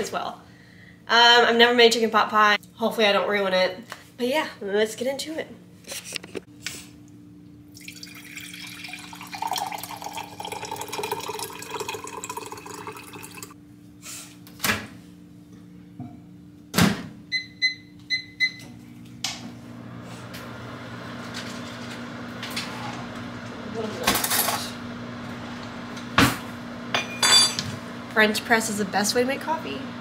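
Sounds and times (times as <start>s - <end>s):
water running into container: 7.7s - 13.6s
appliance hissing: 19.7s - 30.0s.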